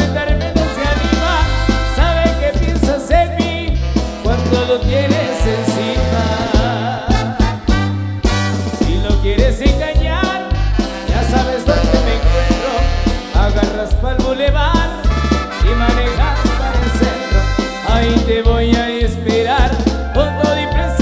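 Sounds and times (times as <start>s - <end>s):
loud dance music: 3.9s - 8.8s, 10.3s - 13.7s, 15.0s - 18.7s.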